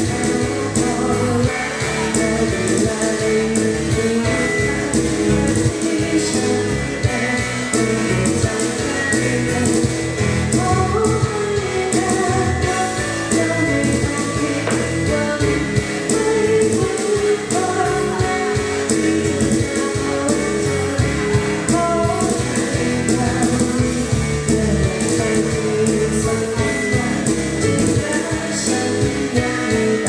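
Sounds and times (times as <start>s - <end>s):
live song through pa system: 0.0s - 30.0s.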